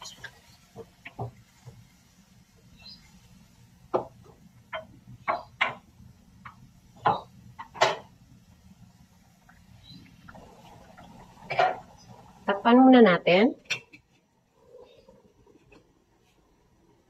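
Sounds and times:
spoon knocking against pan: 3.9s - 8.1s.

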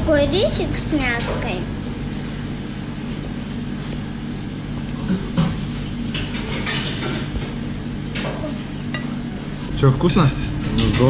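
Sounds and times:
low machine hum: 0.0s - 11.0s.

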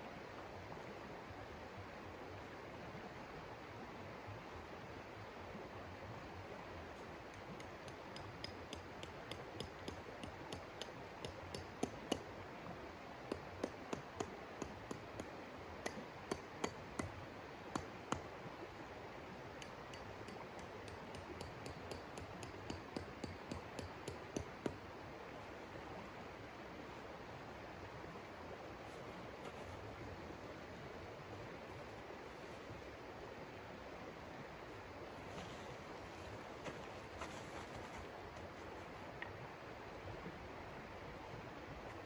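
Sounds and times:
river flowing: 0.0s - 42.0s
sharp clinks and taps: 7.6s - 12.2s, 15.9s - 17.1s, 19.6s - 24.8s.

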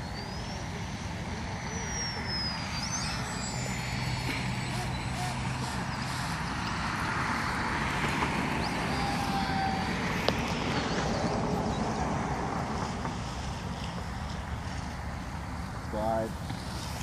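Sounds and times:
model plane motor buzzing: 0.0s - 11.1s.

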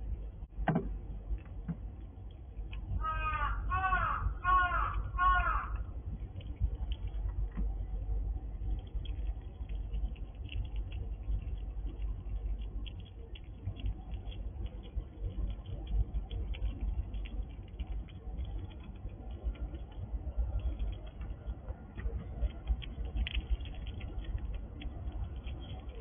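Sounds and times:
low bumps near microphone: 0.0s - 3.1s
squirrel crunching food: 1.1s - 26.0s.

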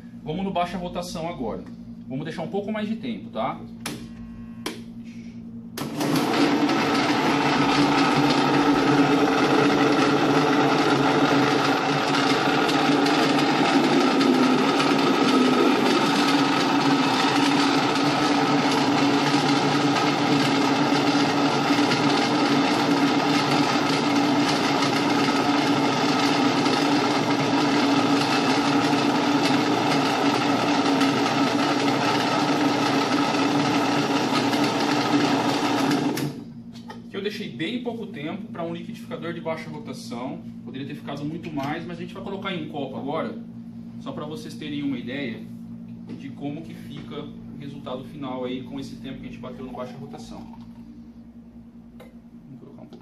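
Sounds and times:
blender motor chopping carrots: 5.8s - 36.4s.

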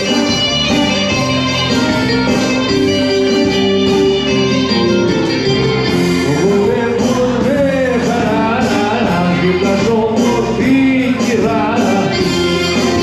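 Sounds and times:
person singing: 5.9s - 13.0s.

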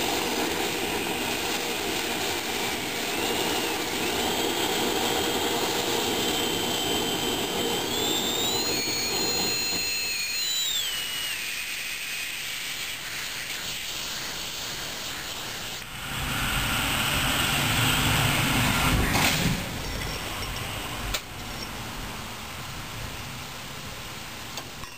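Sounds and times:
hiss of oil spray: 0.0s - 19.6s
oil burner flame running: 0.0s - 21.4s
high whistle: 0.7s - 15.9s.

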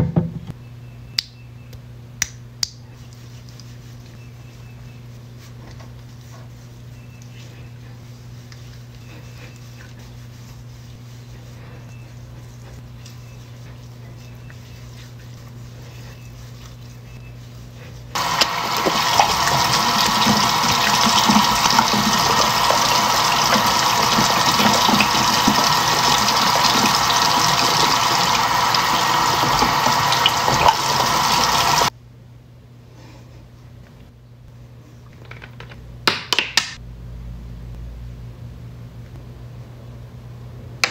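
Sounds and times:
faint steady hum: 0.5s - 36.0s
tap water splashing into basin: 18.2s - 31.9s.

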